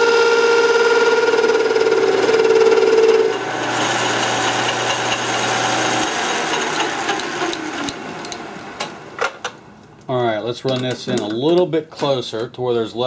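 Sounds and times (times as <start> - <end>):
metal lathe cutting whine: 0.0 - 8.6
motor low hum: 0.0 - 9.1.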